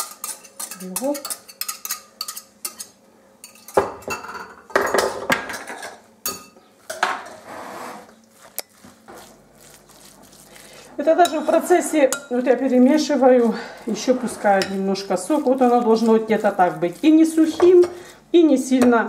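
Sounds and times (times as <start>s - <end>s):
spoon stirring moist mixture: 0.0s - 4.1s, 8.1s - 19.0s
whisk clinking on glass bowl: 11.2s - 12.8s, 14.0s - 18.0s.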